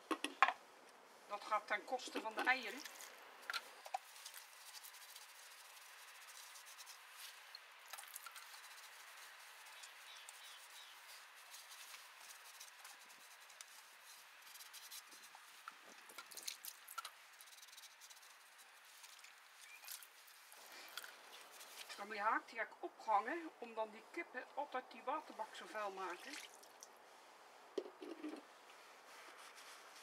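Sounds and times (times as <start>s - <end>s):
sponge scrubbing plastic: 4.0s - 15.8s.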